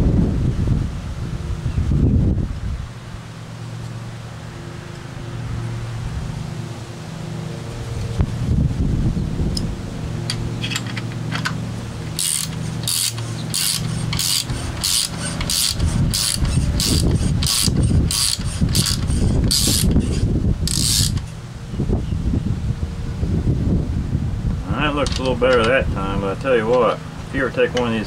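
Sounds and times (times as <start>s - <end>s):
hand ratchet clicking: 12.1s - 21.4s.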